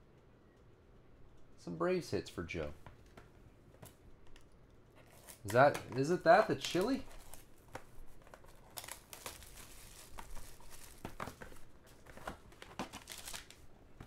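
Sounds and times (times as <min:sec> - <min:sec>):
plastic shrink wrap crinkling: 0:05.0 - 0:14.0.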